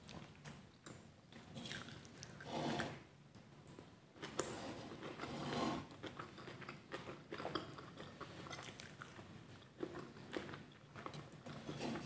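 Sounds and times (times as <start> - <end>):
person chewing food: 0.0 - 2.5, 3.6 - 12.0.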